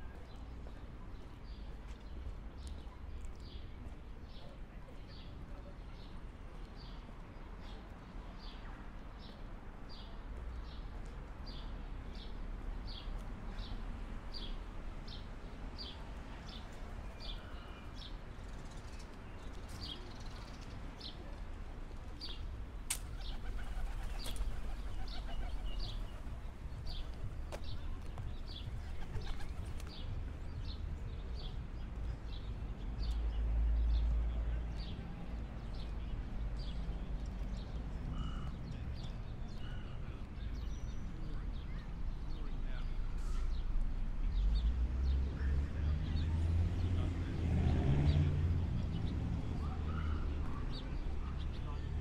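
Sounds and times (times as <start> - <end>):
wind: 0.0 - 52.0
distant traffic: 12.9 - 40.6.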